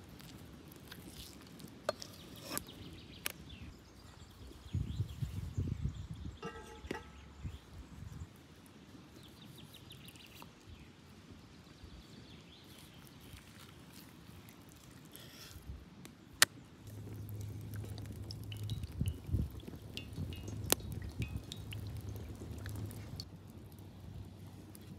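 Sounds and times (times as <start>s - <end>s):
pan clanking on stones: 6.4s - 7.3s.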